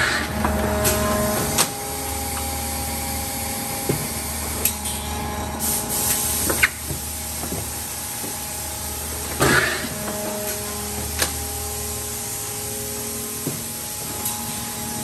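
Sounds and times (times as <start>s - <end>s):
industrial machinery humming: 0.0s - 15.0s
air hissing: 5.6s - 8.3s.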